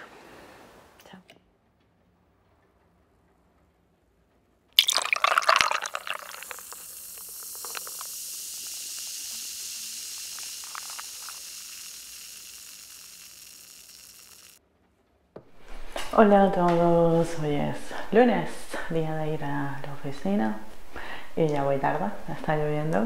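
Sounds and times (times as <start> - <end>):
milk pouring and splashing: 4.8 - 14.6
steady high hiss: 4.8 - 14.6, 15.6 - 23.0.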